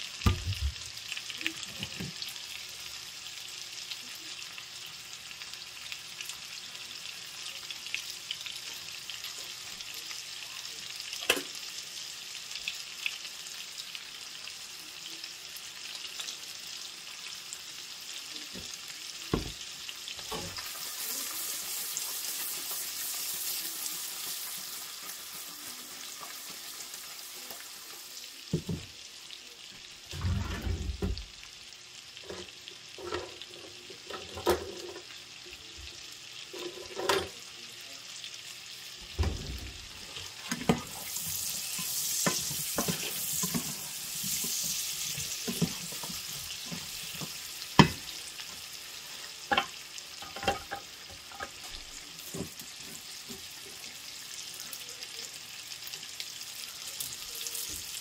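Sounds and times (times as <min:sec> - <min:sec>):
vegetables sizzling in a pan: 0:00.0 - 0:58.0.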